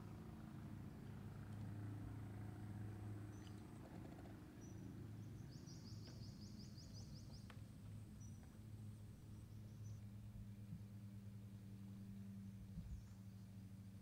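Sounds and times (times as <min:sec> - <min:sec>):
songbird chirping and trilling: 0:03.3 - 0:03.6, 0:04.6 - 0:07.6.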